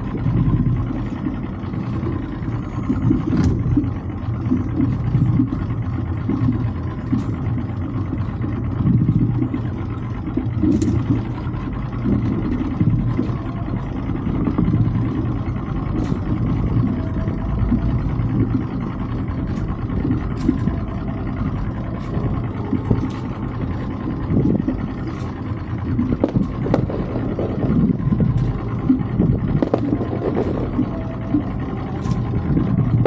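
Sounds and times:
outboard motor running: 0.0 - 33.0.

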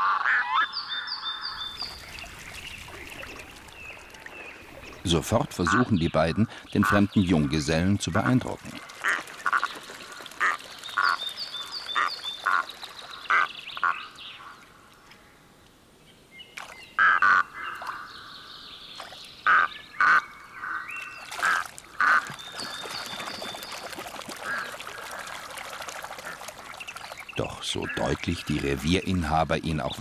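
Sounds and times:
water splashing: 1.4 - 15.2, 16.6 - 18.0, 20.9 - 30.0
loons croaking calls: 4.8 - 7.5, 17.0 - 18.4.

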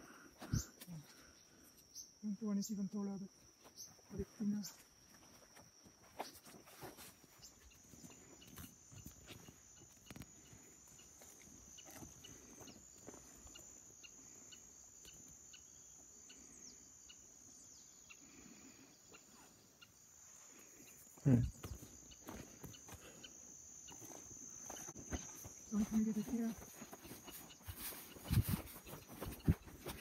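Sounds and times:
high-pitched insect drone: 7.4 - 30.0.

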